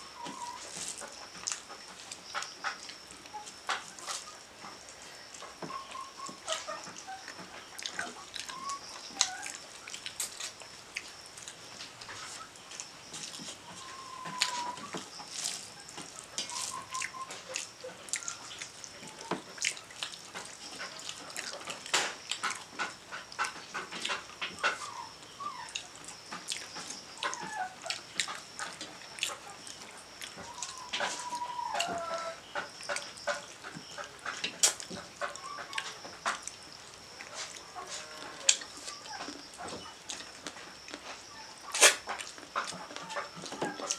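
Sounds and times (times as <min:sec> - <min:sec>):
wavering animal calls: 0:00.0 - 0:10.0, 0:13.4 - 0:19.4, 0:22.4 - 0:34.5.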